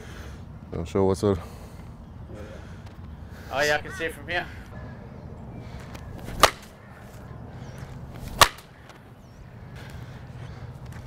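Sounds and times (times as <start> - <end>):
cricket bat hitting ball: 6.3 - 6.8, 8.3 - 8.8.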